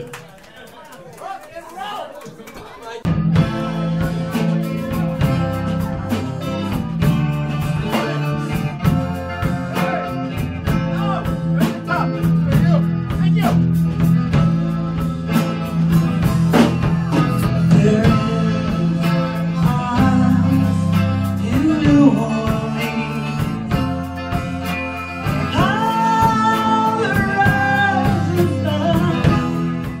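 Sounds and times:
live country band playing: 3.0 - 30.0
person singing: 4.0 - 12.2, 16.5 - 30.0.

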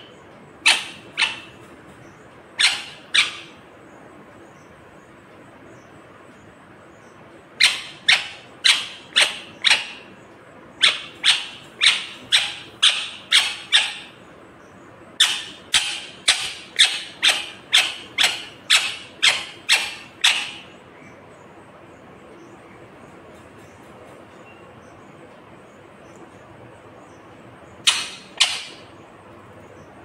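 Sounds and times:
parrot calling loudly: 0.0 - 1.7, 2.5 - 3.7, 7.6 - 10.1, 10.8 - 14.2, 15.2 - 20.8, 27.8 - 28.9.

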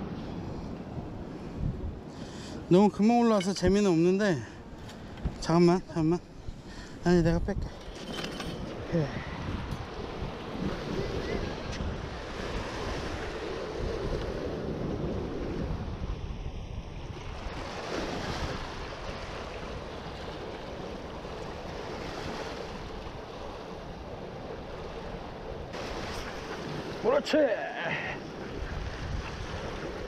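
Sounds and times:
wind buffeting microphone: 0.0 - 4.0, 4.6 - 27.2, 28.2 - 30.0
waves splashing against rocks: 24.8 - 30.0.

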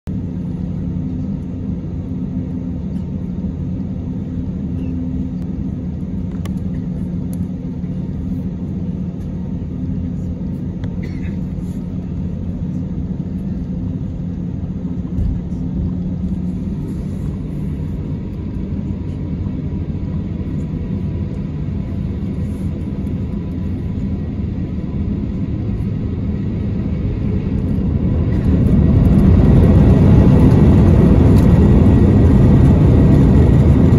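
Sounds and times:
faint engine whine: 0.0 - 33.9
jet engine rumble and hum: 0.0 - 33.9.

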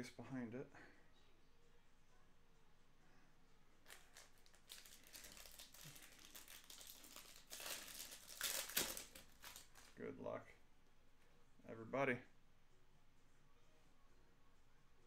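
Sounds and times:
wrappers crinkling and tearing: 3.8 - 10.0.

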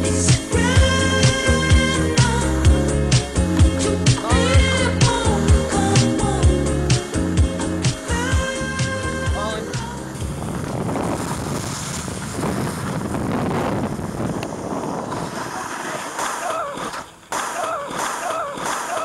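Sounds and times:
wind rushing on microphone: 9.4 - 16.1
snowboard scraping over slushy snow: 10.1 - 16.5.

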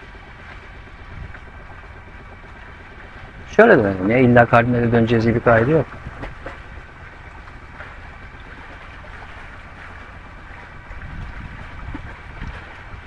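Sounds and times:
faint high hum: 0.0 - 13.0
water rushing along hull: 0.0 - 13.0
wind buffeting microphone: 0.0 - 13.0.

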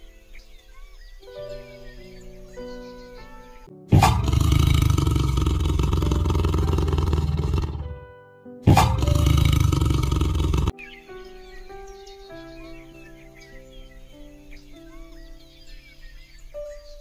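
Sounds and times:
background music: 0.0 - 17.0
tiger roaring: 3.9 - 8.0, 8.7 - 10.7.

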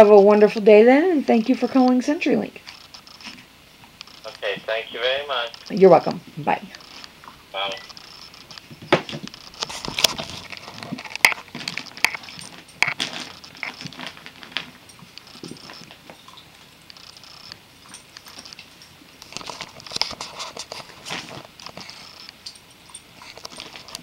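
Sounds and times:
dogs scuffling and mouthing: 6.7 - 24.0.

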